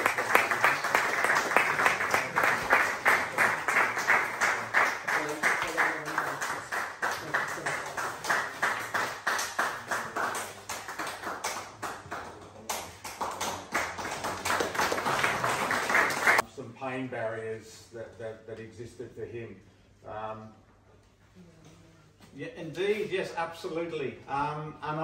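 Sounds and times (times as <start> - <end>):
audience clapping in rhythm: 0.0 - 16.4.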